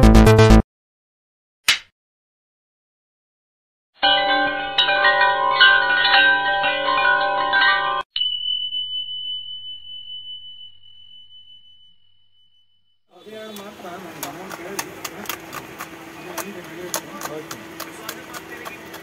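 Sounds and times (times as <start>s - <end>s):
shimmering bell-like chimes: 4.0s - 13.1s
high ringing tone: 4.0s - 13.2s.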